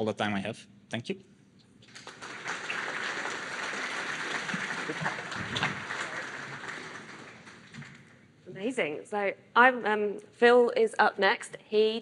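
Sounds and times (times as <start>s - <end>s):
audience applauding: 1.9s - 8.2s.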